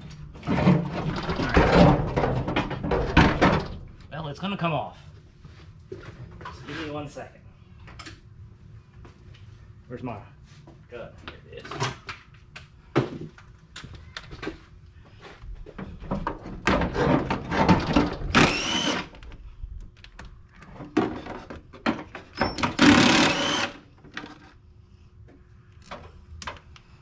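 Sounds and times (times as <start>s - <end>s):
cordless power tool whirring: 18.3s - 19.2s, 22.6s - 23.8s.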